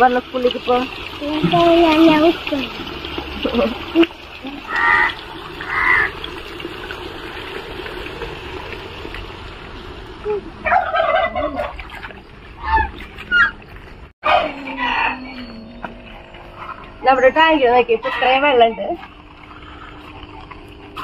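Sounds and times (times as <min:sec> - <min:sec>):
fowl calling: 0:04.7 - 0:06.1, 0:10.6 - 0:11.9, 0:12.6 - 0:16.0, 0:18.0 - 0:18.8.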